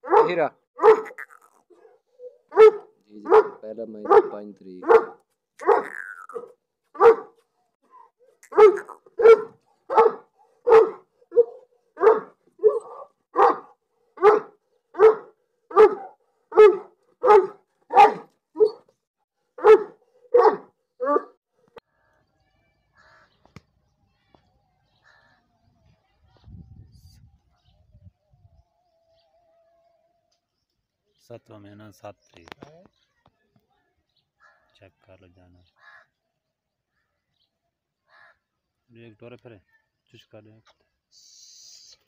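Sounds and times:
large dog barking: 0:00.0 - 0:07.4, 0:08.0 - 0:18.9, 0:19.6 - 0:21.4.

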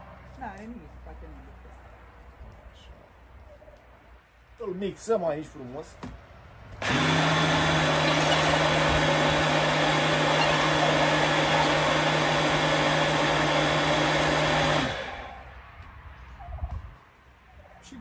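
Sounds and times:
electric blender running: 0:06.8 - 0:15.4.

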